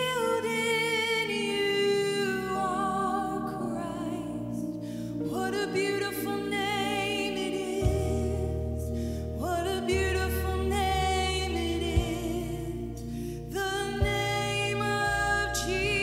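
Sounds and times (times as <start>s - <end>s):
woman singing: 0.0s - 16.0s
deep bass note: 7.8s - 16.0s.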